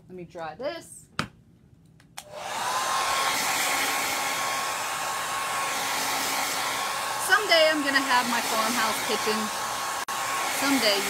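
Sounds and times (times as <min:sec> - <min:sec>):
hair dryer blowing: 0:02.2 - 0:11.0.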